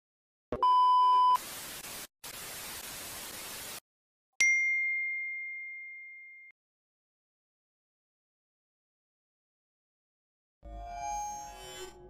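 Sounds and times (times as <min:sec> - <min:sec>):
test-card beep: 0:00.6 - 0:01.4
tv static hissing: 0:01.4 - 0:03.8.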